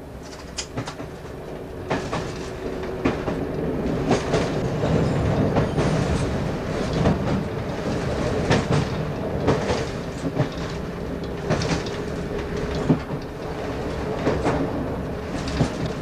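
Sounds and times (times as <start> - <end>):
train wheels clacking over rail joints: 0.2 - 16.0.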